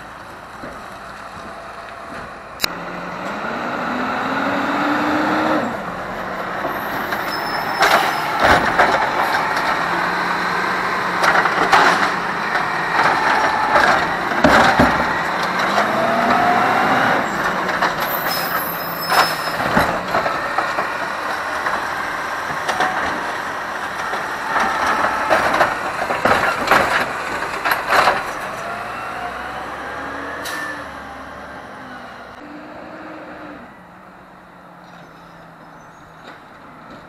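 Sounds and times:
diesel engine under load: 0.0s - 37.0s
cart banging and knocking: 6.0s - 29.5s.

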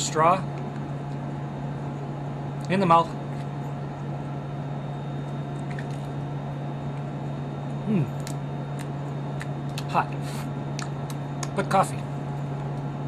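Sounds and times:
cabin fans humming: 0.0s - 13.0s
person humming mm: 7.8s - 8.2s.

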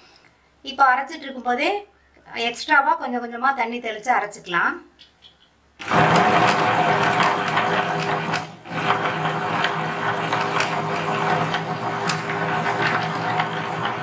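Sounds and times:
wet grinder humming and ticking: 5.8s - 14.0s.

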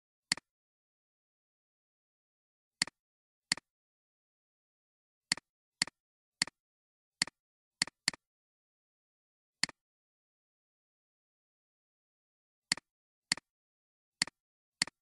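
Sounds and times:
computer mouse clicks: 14.2s - 15.0s.

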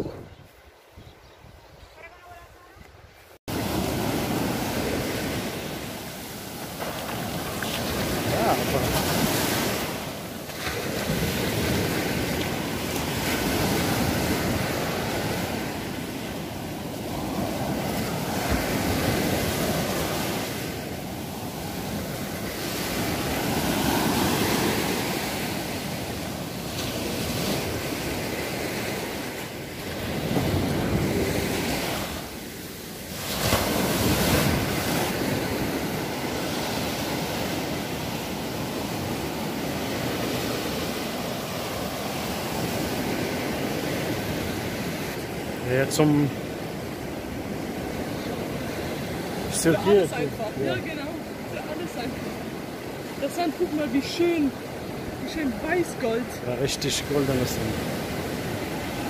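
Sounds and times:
wind buffeting microphone: 0.0s - 3.2s
surf breaking on beach: 3.5s - 59.0s.

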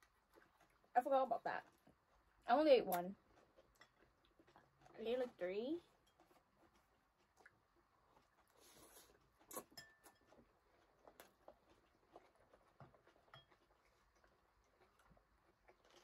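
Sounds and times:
cutlery clicking against bowls: 9.5s - 10.3s, 13.3s - 13.6s.

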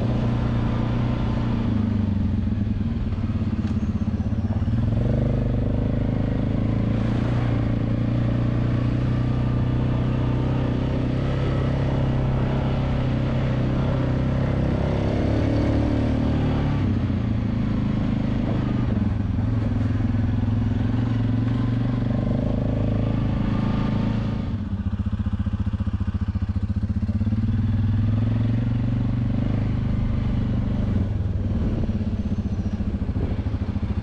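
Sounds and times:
atv engine running: 0.0s - 34.0s.

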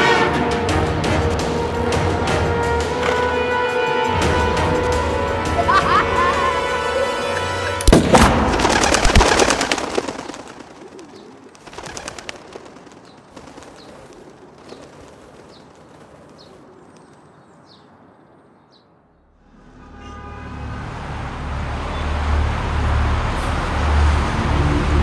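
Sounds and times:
gunshot: 7.8s - 8.7s
birds wings flapping: 7.8s - 17.8s.

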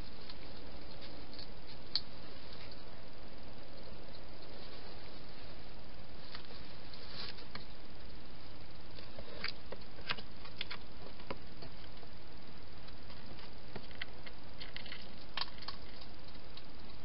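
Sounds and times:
steady hiss: 0.0s - 17.0s
hedgehog rustling dry leaves: 4.0s - 11.1s.

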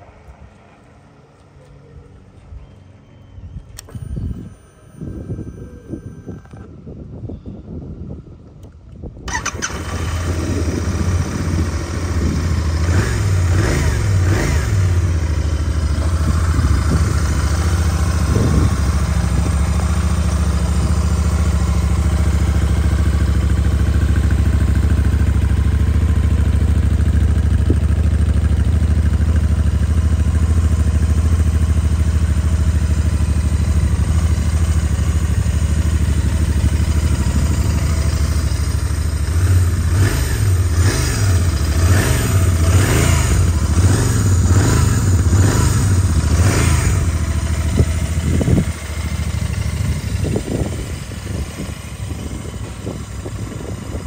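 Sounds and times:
motorcycle engine idling: 9.3s - 54.0s.

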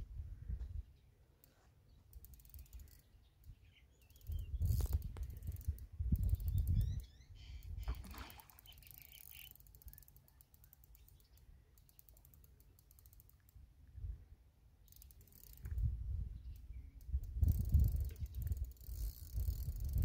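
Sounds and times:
bird chirping: 1.9s - 4.9s, 6.2s - 10.1s
fishing reel clicking: 2.1s - 7.7s, 8.6s - 13.6s, 14.8s - 15.9s, 16.5s - 20.0s.

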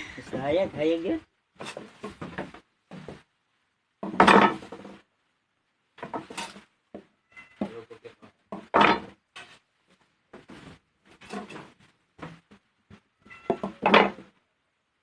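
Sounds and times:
plates knocking on wooden table: 4.0s - 5.0s, 8.5s - 9.2s, 13.3s - 14.3s.

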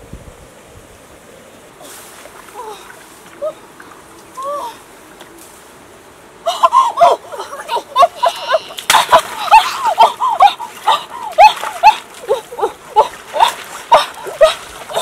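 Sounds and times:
water splashing in stream: 1.8s - 5.7s, 7.2s - 15.0s.

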